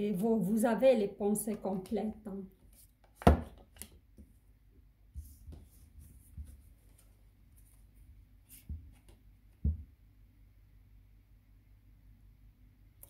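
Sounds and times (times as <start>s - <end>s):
cards tapping on a table: 3.1s - 3.9s.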